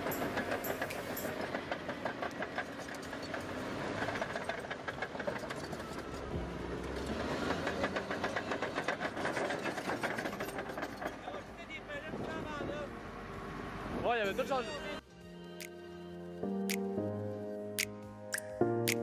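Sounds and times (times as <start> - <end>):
bulldozer tracks clanking: 0.0 - 12.7.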